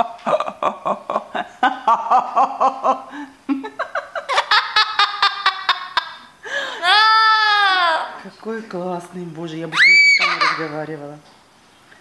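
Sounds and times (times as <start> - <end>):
parrot laughing: 0.0 - 8.2, 9.8 - 10.8.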